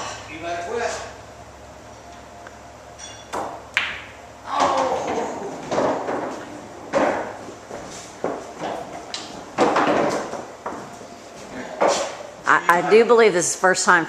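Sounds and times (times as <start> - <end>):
pool balls clacking: 3.1 - 11.0.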